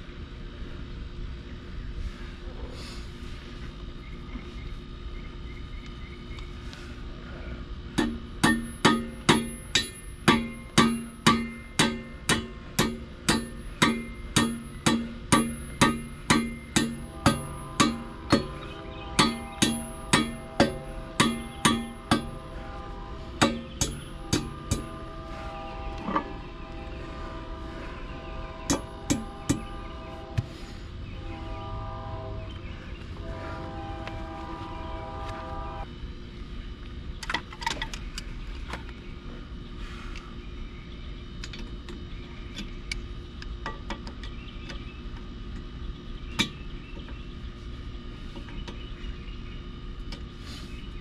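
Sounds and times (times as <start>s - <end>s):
steady low hum: 0.0s - 51.0s
hammer striking metal: 8.0s - 22.5s, 23.4s - 25.0s, 28.7s - 30.5s
multi-tone horn: 17.0s - 32.6s, 33.2s - 35.9s.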